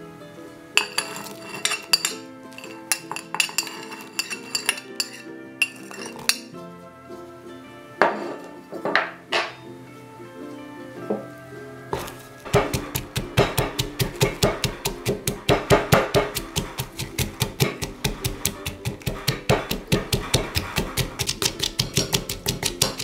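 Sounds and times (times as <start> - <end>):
background music: 0.0 - 23.0
pestle pounding in clay mortar: 12.0 - 23.0.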